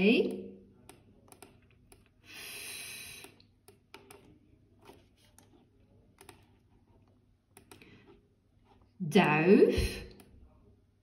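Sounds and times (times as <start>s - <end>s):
laptop clicks and taps: 0.8s - 2.1s, 3.2s - 5.5s, 6.2s - 6.5s, 7.5s - 7.9s.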